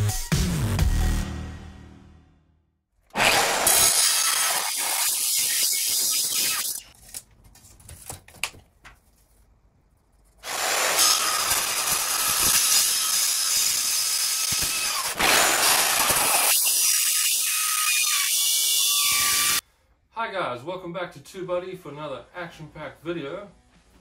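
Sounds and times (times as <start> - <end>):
mitre saw cutting steel: 3.1 - 7.0, 10.4 - 19.6.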